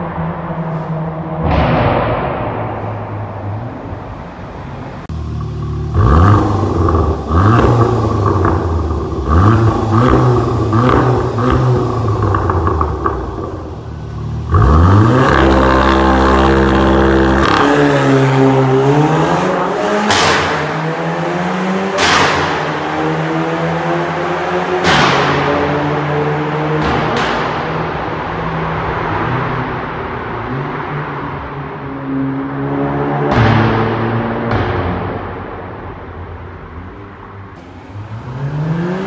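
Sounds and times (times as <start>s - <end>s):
car engine revving in tunnel: 0.0s - 39.0s
car accelerating away: 5.0s - 27.1s, 37.6s - 39.0s.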